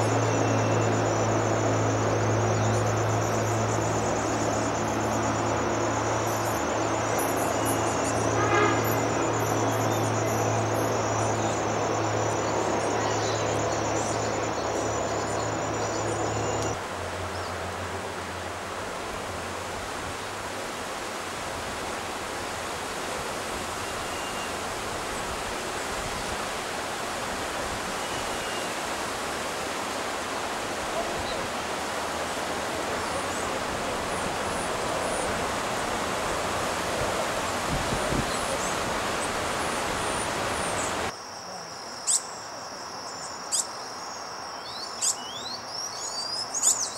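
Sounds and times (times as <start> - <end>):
steady rushing noise: 0.0 - 17.1
faint high bird chirps: 41.5 - 46.9.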